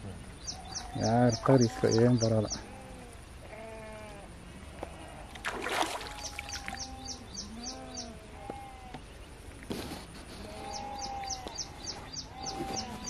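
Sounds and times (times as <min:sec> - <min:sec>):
livestock bleating: 0:00.6 - 0:05.4, 0:06.1 - 0:09.0, 0:10.4 - 0:13.0
water splash: 0:05.3 - 0:06.8.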